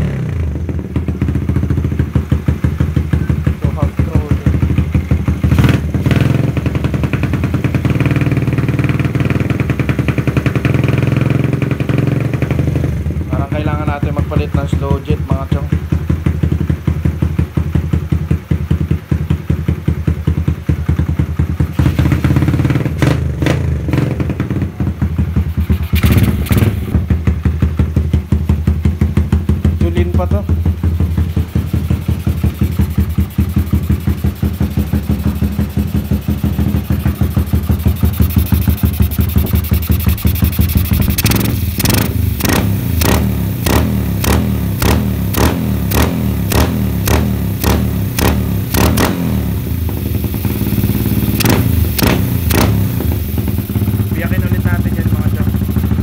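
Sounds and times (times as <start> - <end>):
motorcycle engine idling: 0.0 - 56.0
sharp regular ticking: 30.9 - 56.0.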